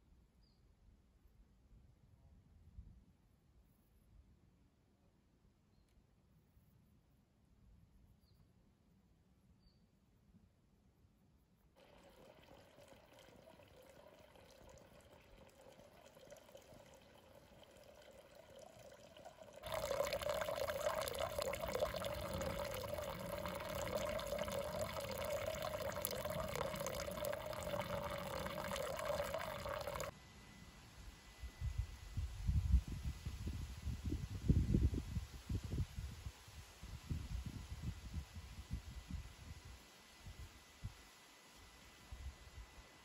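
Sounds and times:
water trickling into a pool: 11.8 - 30.1.

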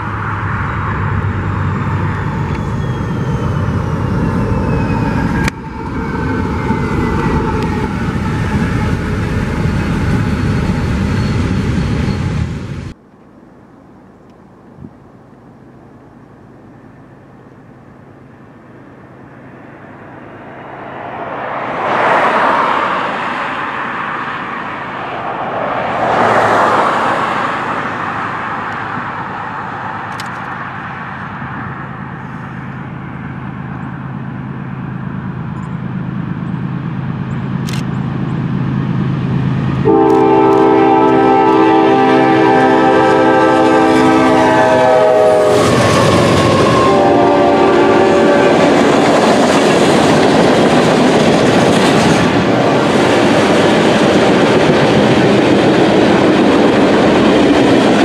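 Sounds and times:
loud rushing noise: 0.0 - 13.0, 19.4 - 33.0, 36.3 - 58.0
freight train rumble: 0.0 - 58.0
train air horn chord: 39.8 - 48.7.

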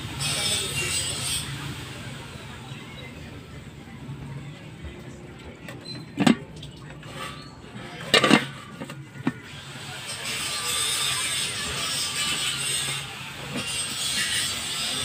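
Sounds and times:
kitchenware clattering: 5.6 - 9.4.

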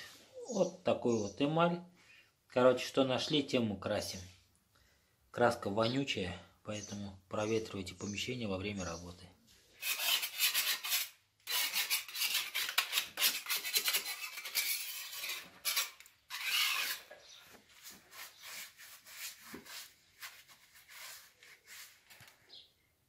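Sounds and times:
paintbrush scratching on metal: 9.9 - 22.2.

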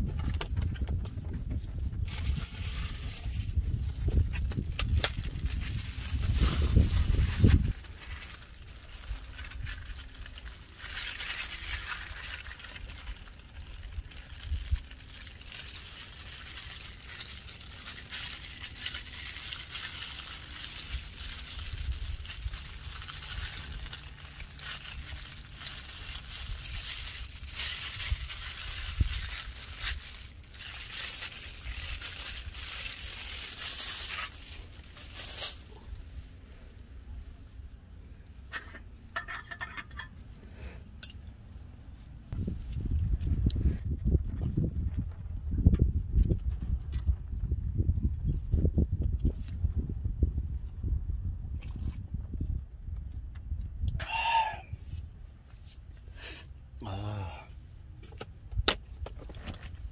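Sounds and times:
low rumble: 0.0 - 39.2, 40.2 - 54.0
plastic pouch crinkling: 2.1 - 35.9.

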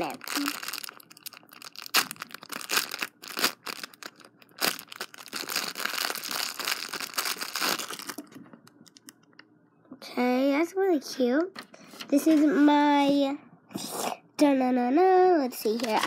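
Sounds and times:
plastic packaging crinkling: 0.0 - 9.2.

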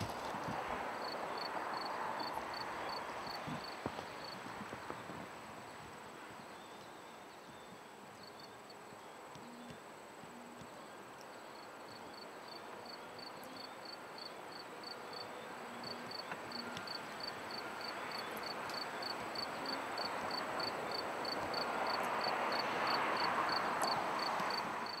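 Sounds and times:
outdoor ambience hiss: 0.0 - 25.0
insect chirping: 1.0 - 4.4, 9.4 - 25.0.

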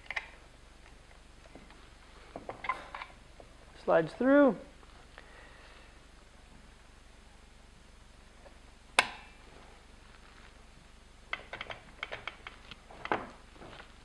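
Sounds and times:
sharp metallic click: 9.0 - 9.3.

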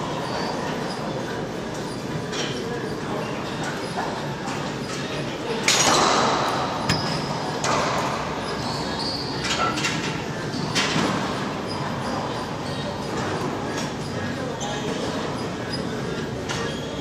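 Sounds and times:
racquetball hits echoing: 5.9 - 8.2.

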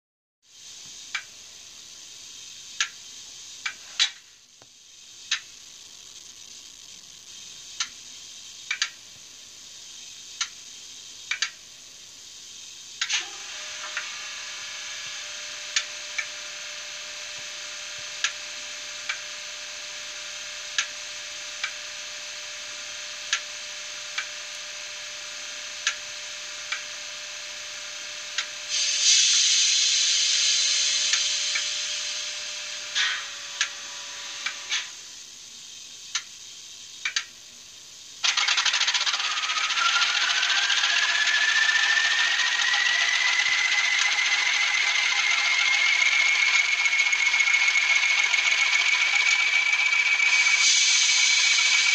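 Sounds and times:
loud hiss: 0.4 - 51.9
sharp clicks: 8.7 - 9.0, 11.3 - 11.6, 37.0 - 37.3.

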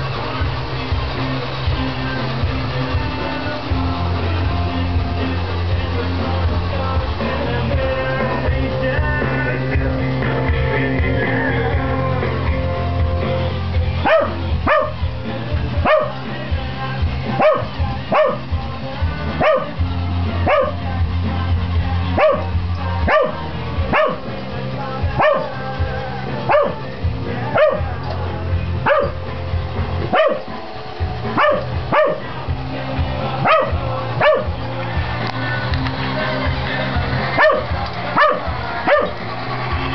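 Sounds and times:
rock music: 0.0 - 39.9
dog barking frantically: 14.0 - 15.0, 15.8 - 16.2, 17.3 - 18.5, 19.4 - 19.8, 20.4 - 20.8, 22.1 - 24.3, 25.1 - 25.6, 26.4 - 27.9, 28.8 - 29.3, 30.0 - 30.5, 31.2 - 32.4, 33.4 - 34.5, 37.2 - 39.3.

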